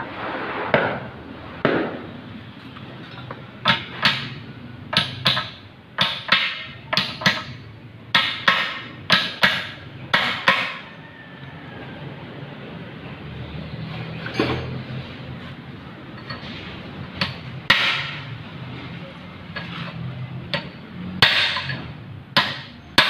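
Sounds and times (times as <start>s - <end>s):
hammer striking metal: 3.2s - 10.9s, 17.2s - 18.4s, 20.5s - 23.0s.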